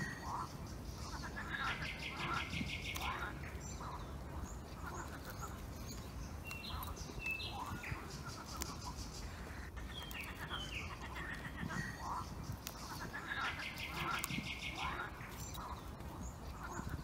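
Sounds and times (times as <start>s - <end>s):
birds chirping: 0.0s - 17.0s
low background noise: 0.0s - 17.0s
dog gnawing wooden stick: 1.3s - 17.0s
sharp clicks and cracks: 2.2s - 3.3s, 4.8s - 8.9s, 12.3s - 17.0s.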